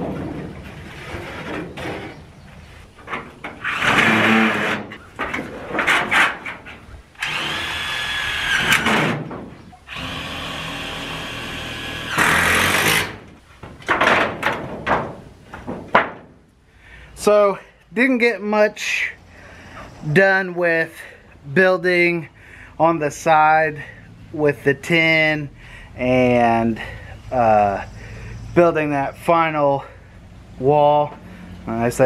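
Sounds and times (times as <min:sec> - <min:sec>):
roofing tin clattering and scraping: 0:00.0 - 0:06.9, 0:08.6 - 0:09.8, 0:13.0 - 0:16.5
power drill running: 0:07.2 - 0:09.1, 0:09.9 - 0:13.2.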